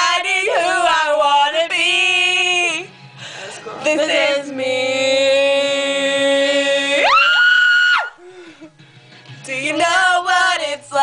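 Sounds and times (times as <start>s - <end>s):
girl singing: 0.0s - 2.9s, 9.5s - 11.0s.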